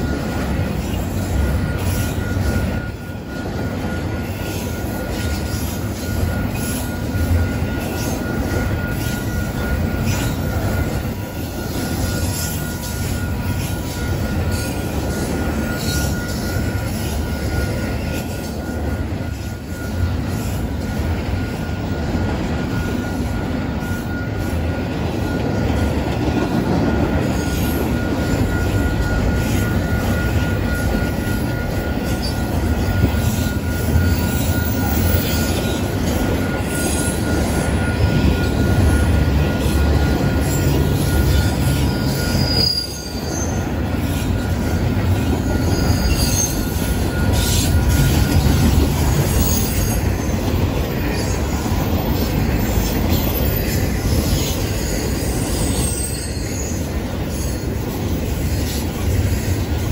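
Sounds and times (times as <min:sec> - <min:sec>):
wheel squeal: 0:00.0 - 0:20.6, 0:26.8 - 0:59.8
train wheels rumbling on rails: 0:00.0 - 0:59.9
short high squeaks: 0:40.5 - 0:43.6.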